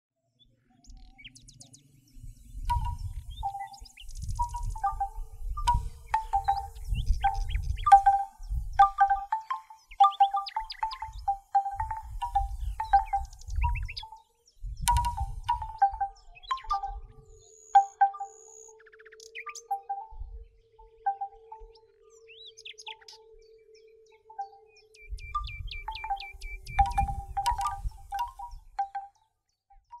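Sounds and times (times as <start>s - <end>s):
birds chirping and trilling: 0.4s - 29.3s
bamboo wind chime knocking: 2.7s - 3.7s, 4.4s - 14.2s, 14.8s - 17.2s, 17.8s - 18.4s, 25.3s - 29.1s.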